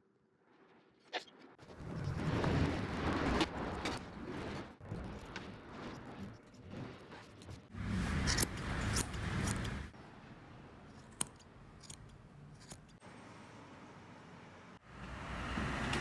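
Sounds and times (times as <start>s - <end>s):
scissors snipping: 8.2s - 9.8s, 10.9s - 13.0s.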